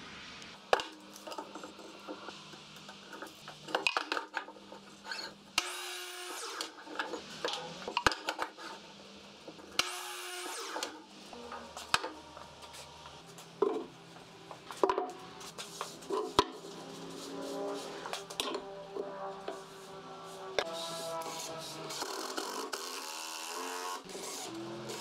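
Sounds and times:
miter saw cutting wood: 5.2s - 6.7s, 9.8s - 12.1s, 17.6s - 25.0s.

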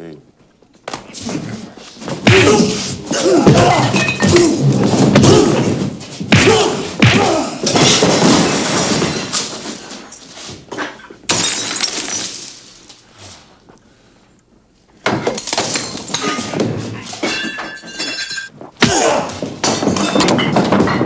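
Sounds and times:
men grunting: 1.1s - 7.8s, 18.8s - 19.4s
crashes and thuds: 2.1s - 9.9s
glass shattering: 3.5s - 5.3s, 7.6s - 10.3s, 11.3s - 12.9s, 15.2s - 16.6s, 17.2s - 18.5s, 19.6s - 21.0s.

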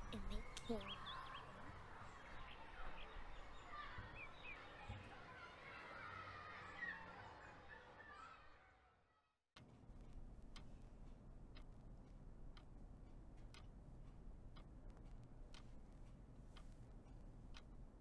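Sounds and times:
clock ticking: 9.6s - 18.0s
low room hum: 9.6s - 18.0s.

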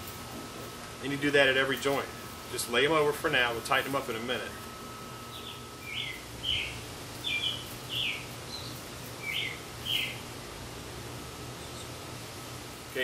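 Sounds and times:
air conditioner humming: 0.0s - 13.0s
bird chirping: 5.2s - 10.3s, 11.6s - 12.0s.

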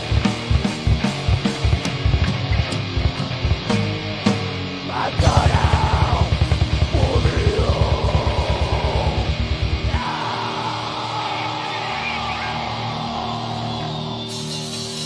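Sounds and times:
distorted guitar and bass: 0.0s - 15.0s
screamed vocal: 4.9s - 15.0s
fast bass drum kicks: 5.2s - 10.0s.

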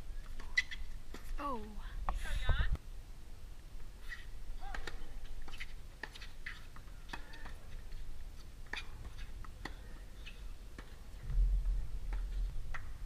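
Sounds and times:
tennis ball bouncing on court: 12.0s - 13.0s.

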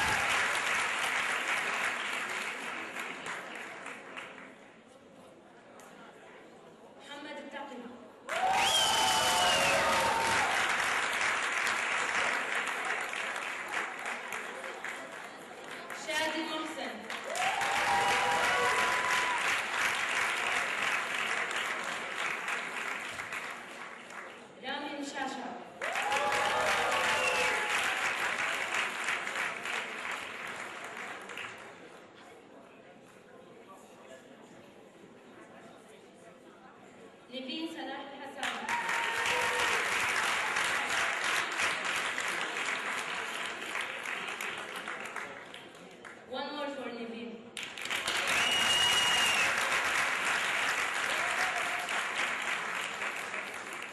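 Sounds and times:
audience applauding: 0.0s - 4.5s, 8.3s - 16.0s, 17.1s - 24.5s, 25.8s - 31.8s, 38.4s - 46.2s, 47.6s - 53.9s.

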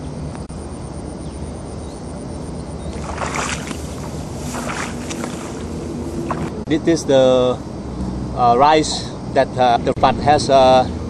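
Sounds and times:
steady low hum: 0.0s - 8.6s
dry rice stalks rustling: 2.9s - 6.6s.

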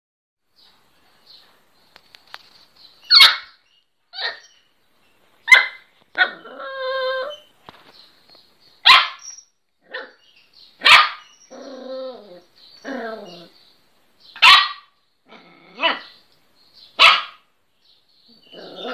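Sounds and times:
dog barking: 3.1s - 3.6s, 4.2s - 4.5s, 5.5s - 6.4s, 8.8s - 9.3s, 10.8s - 11.3s, 14.4s - 14.9s, 15.8s - 16.2s, 17.0s - 17.4s
dog crying: 4.2s - 4.5s, 5.5s - 7.5s, 18.4s - 18.9s.

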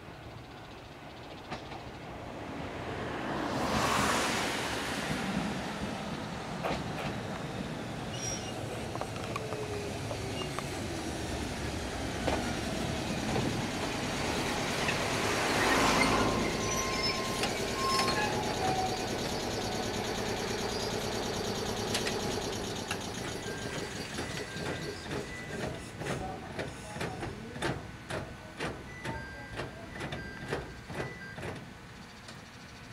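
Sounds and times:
train wheels rumbling on rail: 1.0s - 32.8s
train clicks: 6.6s - 7.5s, 8.5s - 32.5s
brake squeals: 7.6s - 10.8s, 12.3s - 26.9s.

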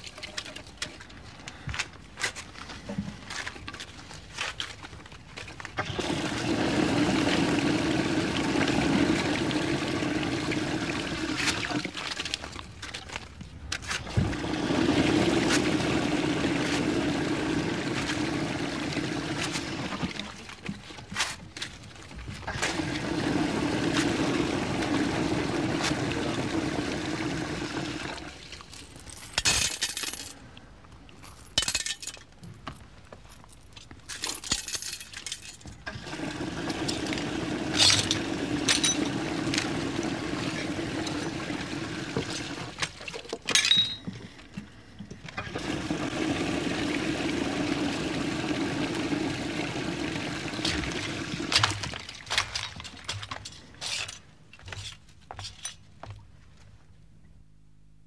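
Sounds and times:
toilet flushing: 5.8s - 12.3s, 14.1s - 20.5s, 22.5s - 28.5s, 35.9s - 43.0s, 45.4s - 52.3s.

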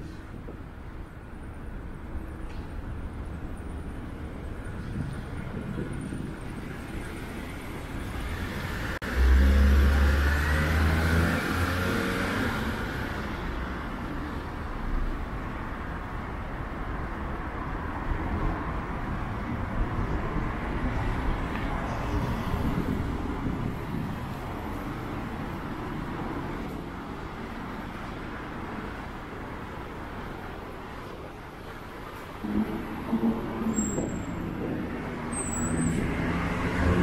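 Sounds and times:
street traffic: 0.0s - 37.0s
vehicle engine passing close: 8.1s - 13.3s, 34.6s - 37.0s.

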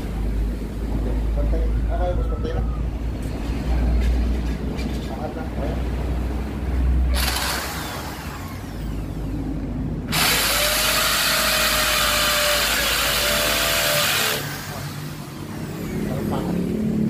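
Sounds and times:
hammer drill boring into concrete: 7.1s - 9.1s, 10.1s - 15.0s.

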